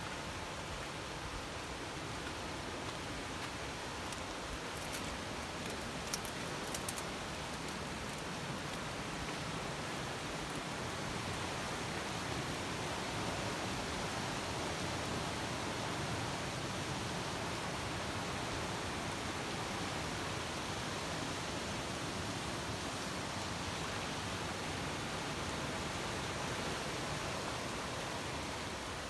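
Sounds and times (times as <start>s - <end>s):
faint clicks: 4.0s - 9.4s.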